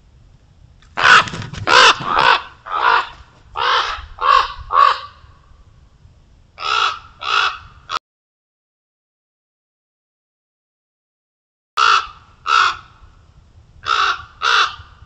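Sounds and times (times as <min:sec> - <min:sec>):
ravens cawing: 0:01.0 - 0:05.4, 0:06.6 - 0:08.0, 0:11.8 - 0:13.1, 0:13.8 - 0:15.0.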